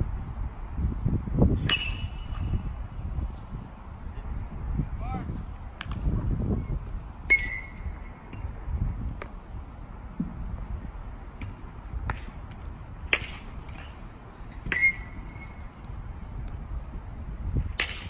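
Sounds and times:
bat hitting a ball: 1.6s - 2.6s, 13.1s - 14.0s, 17.7s - 18.0s.

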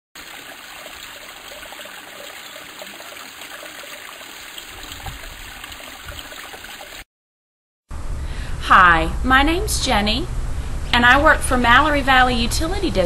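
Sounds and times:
small stream trickling: 0.2s - 7.1s.

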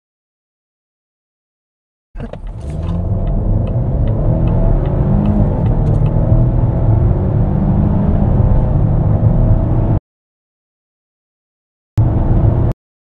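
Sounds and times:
car engine accelerating: 2.2s - 10.0s, 12.0s - 12.7s.

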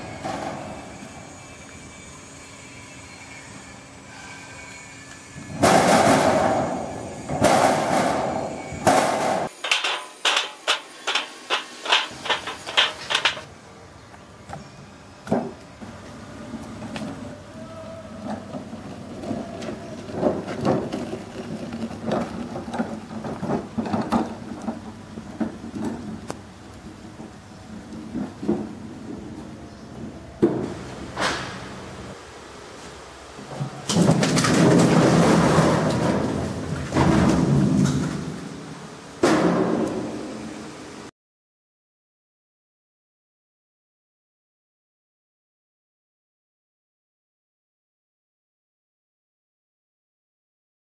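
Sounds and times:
cart rattling on dirt track: 7.4s - 13.5s, 18.1s - 29.6s, 33.6s - 38.4s.

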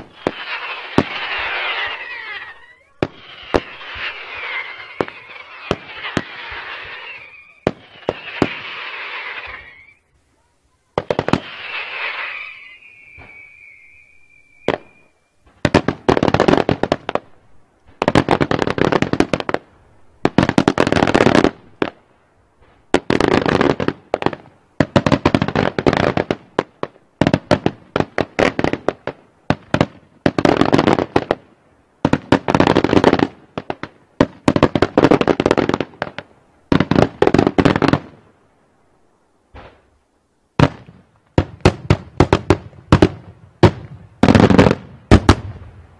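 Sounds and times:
firework whistle: 0.0s - 15.5s
fireworks cracking: 0.0s - 22.0s, 22.6s - 38.5s, 39.4s - 45.9s.

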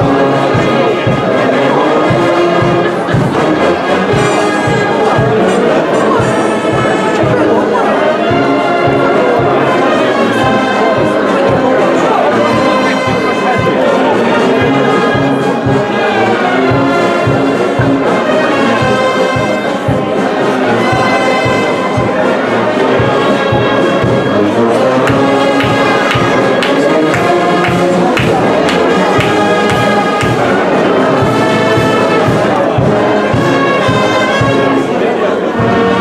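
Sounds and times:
brass band playing: 0.0s - 36.0s
drum beat: 23.0s - 34.8s.

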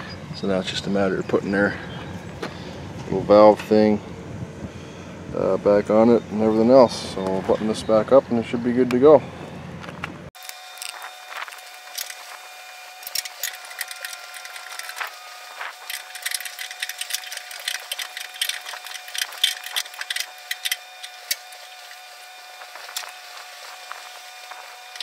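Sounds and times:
metallic clicking of wrenches: 13.0s - 15.1s, 15.8s - 21.6s.

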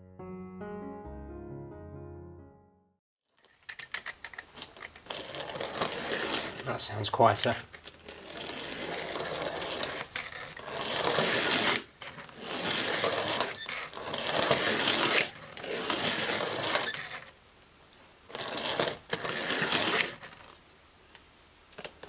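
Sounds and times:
toy train motor whirring: 3.4s - 17.4s, 18.3s - 20.6s.

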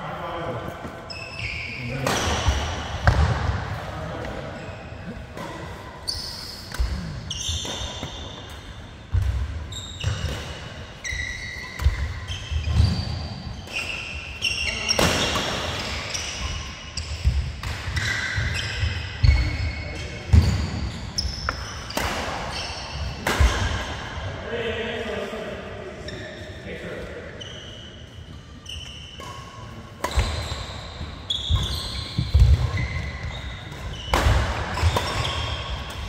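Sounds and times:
shoes squeaking on court: 0.7s - 3.3s, 4.2s - 24.0s, 27.4s - 36.0s
rackets striking shuttlecock: 29.2s - 36.0s.

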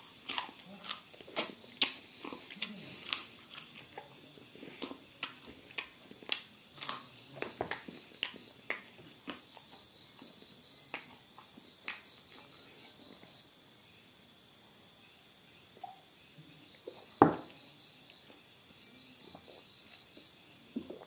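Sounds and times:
crunchy chewing: 0.0s - 13.4s.

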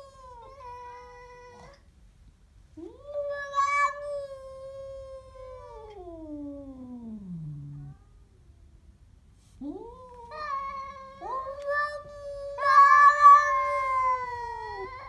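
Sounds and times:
cat growling: 2.8s - 8.2s, 9.6s - 15.0s
cat yowling: 2.9s - 8.1s, 9.8s - 15.0s.

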